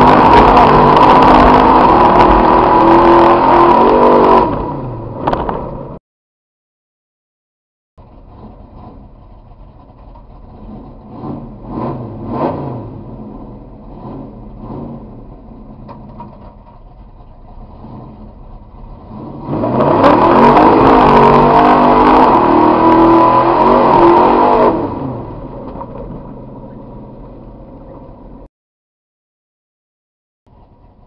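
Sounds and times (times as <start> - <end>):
truck engine revving: 0.0 - 6.0, 10.4 - 15.4, 17.6 - 27.2.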